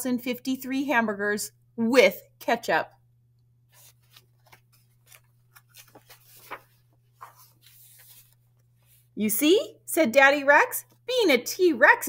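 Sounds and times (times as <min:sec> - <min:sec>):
book page turning: 0:03.7 - 0:09.1
paper rustling: 0:03.7 - 0:09.1.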